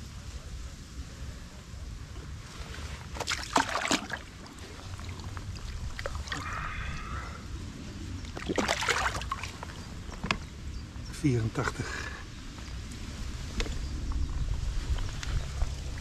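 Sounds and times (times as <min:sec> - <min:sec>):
water splashing and sloshing: 0:02.5 - 0:06.9, 0:08.1 - 0:10.4
steady low rumble: 0:04.0 - 0:16.0.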